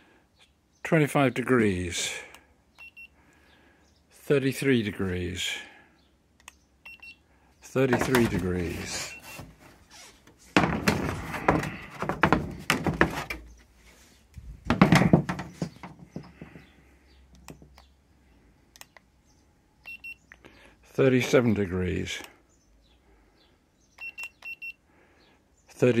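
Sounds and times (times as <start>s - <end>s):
plastic grille knocking and rubbing: 10.5s - 13.5s, 14.6s - 16.6s
heavy thunk: 10.6s - 13.4s, 14.6s - 15.8s.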